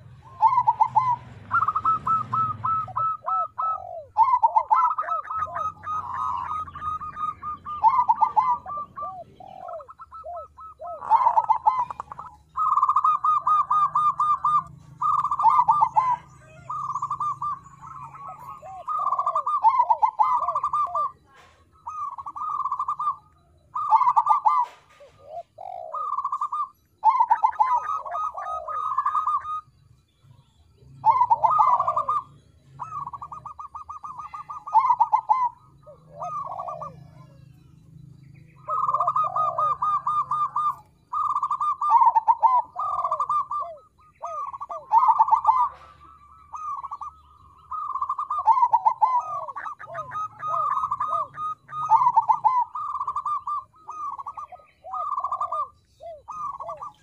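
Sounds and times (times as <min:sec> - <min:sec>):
dove trilled cooing: 0:00.0 - 0:57.0.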